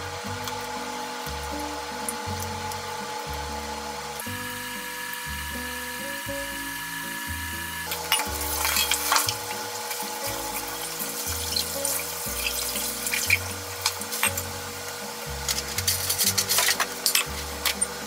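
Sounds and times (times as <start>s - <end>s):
food sizzling in oil: 0.0s - 18.0s
slow low background music: 0.0s - 18.0s
clinks and knocks: 7.9s - 9.5s, 10.6s - 14.5s, 15.5s - 18.0s.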